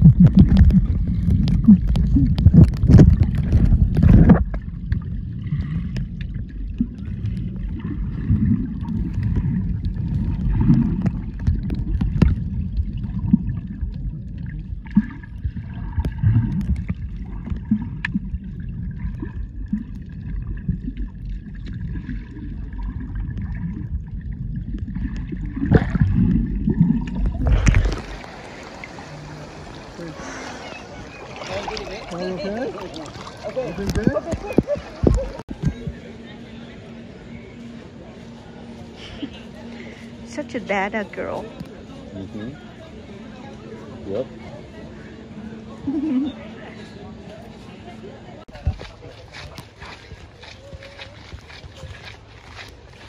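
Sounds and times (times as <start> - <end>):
underwater clicks and crackles: 0.0 - 29.0, 32.7 - 36.1, 48.5 - 53.0
water splashing: 0.0 - 37.2
muffled underwater rumble: 0.0 - 53.0.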